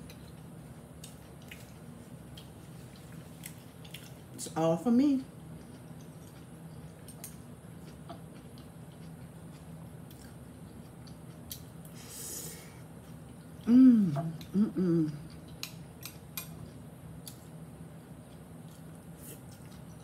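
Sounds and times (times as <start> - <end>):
person humming with full mouth: 13.6 - 15.2.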